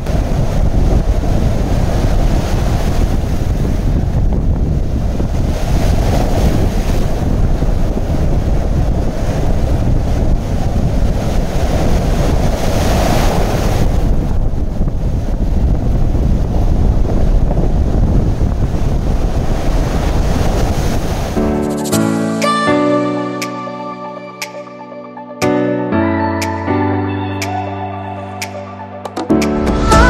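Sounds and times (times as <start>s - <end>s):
wind buffeting microphone: 0.0s - 21.4s
surf breaking on shore: 0.0s - 22.9s.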